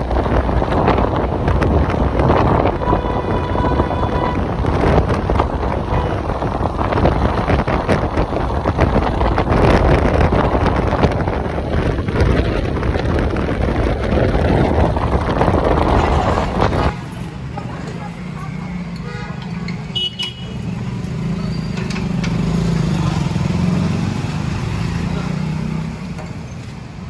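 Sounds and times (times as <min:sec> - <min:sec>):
wind rushing over microphone: 0:00.0 - 0:17.5
road and traffic noise: 0:00.0 - 0:27.0.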